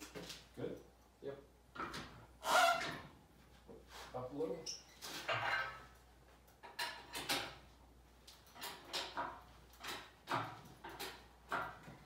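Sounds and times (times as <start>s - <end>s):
metal clanks and scrapes: 4.9s - 6.0s.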